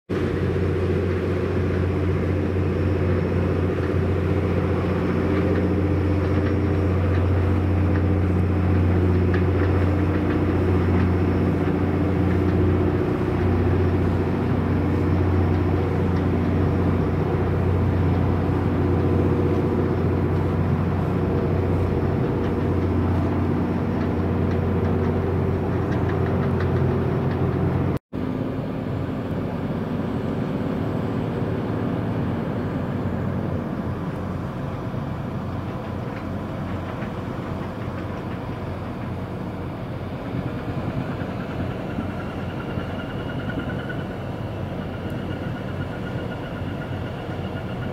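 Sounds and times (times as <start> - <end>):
ship diesel engine humming: 0.1 - 47.9.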